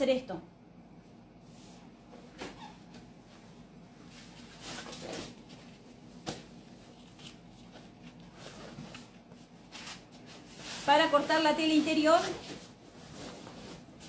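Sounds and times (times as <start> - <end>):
fabric rustling and rubbing: 6.8 - 14.0.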